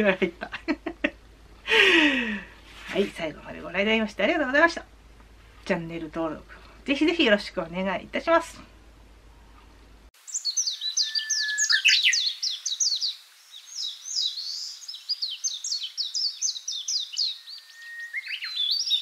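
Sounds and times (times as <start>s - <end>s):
songbirds chirping: 0.0s - 19.0s
long level bird whistle: 10.3s - 19.0s.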